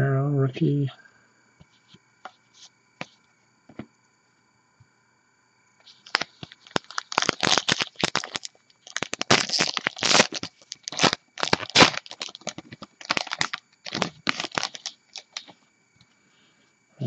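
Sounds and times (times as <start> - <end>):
wrapper tearing and crinkling: 6.0 - 15.5.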